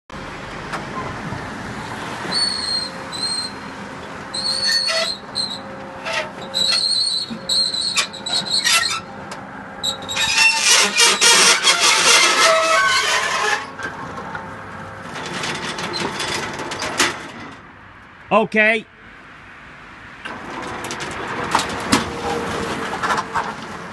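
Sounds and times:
roller shutter squealing: 2.0 - 17.7, 20.2 - 23.9
dense rattling clatter: 10.4 - 17.6.

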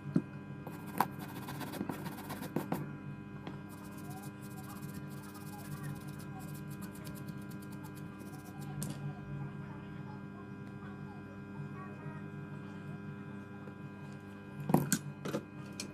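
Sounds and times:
steady electrical hum: 0.0 - 15.9
toothbrush scrubbing circuit board: 0.7 - 2.8, 3.7 - 8.8.

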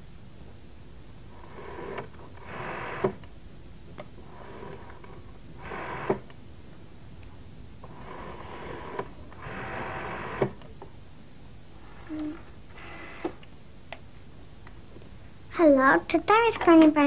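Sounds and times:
rotary dial whirring: 1.3 - 3.2, 4.1 - 6.4, 7.8 - 10.7, 11.8 - 13.5.

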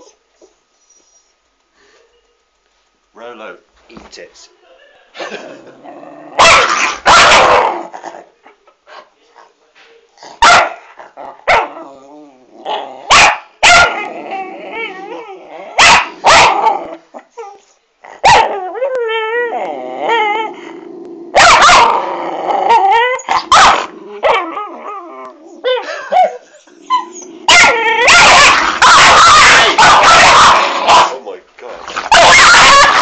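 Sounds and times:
dogs growling: 5.3 - 8.4, 10.2 - 13.2, 13.9 - 33.0
dogs snarling: 5.4 - 8.3, 19.6 - 31.2, 31.8 - 33.0
dogs barking: 6.4 - 7.9, 10.4 - 11.8, 13.1 - 14.1, 15.8 - 16.8, 18.2 - 18.6, 21.4 - 22.1, 22.7 - 24.5, 25.8 - 31.2, 32.0 - 33.0.

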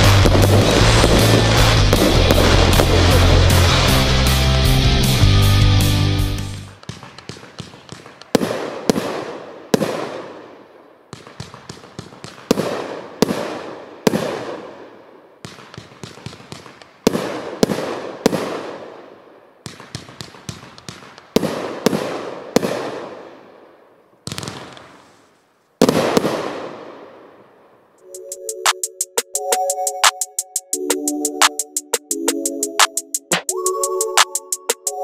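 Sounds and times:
firework bangs: 0.0 - 5.4, 6.4 - 23.6, 24.2 - 27.5
small firework pops: 6.6 - 10.4, 11.1 - 14.8, 15.4 - 18.9, 19.6 - 23.3, 24.2 - 27.0.

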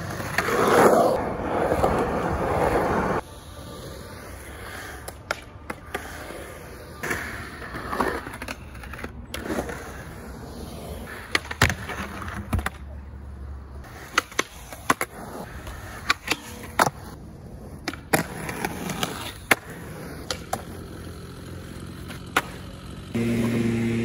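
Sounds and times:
skateboard rolling on concrete: 0.0 - 24.0
skateboard clacking on ground: 3.8 - 10.2, 11.0 - 13.0, 13.8 - 22.8.

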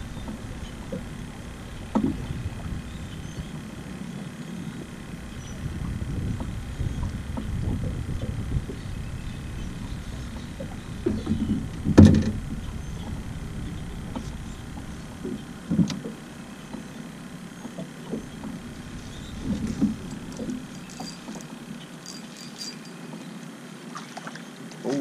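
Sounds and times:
low rumble: 0.0 - 21.9
knocks on small boat: 1.8 - 2.8, 5.8 - 8.8, 10.3 - 13.2, 14.0 - 17.0
faint ticks: 13.0 - 23.5.

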